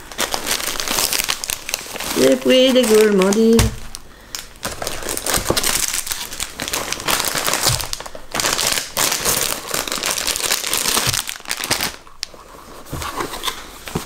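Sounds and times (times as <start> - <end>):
fabric bag rustling: 0.0 - 4.0
plastic wrappers crinkling: 0.0 - 14.0.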